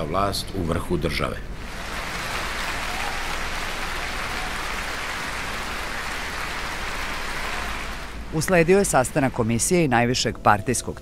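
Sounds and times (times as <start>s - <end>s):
crowd applauding: 1.6s - 9.5s.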